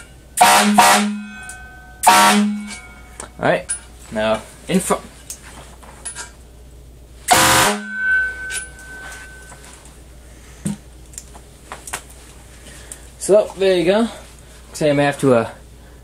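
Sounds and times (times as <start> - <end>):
fire truck air horn blast: 0.4 - 1.4, 2.0 - 2.9, 7.3 - 8.0
thin high tone: 7.3 - 9.9.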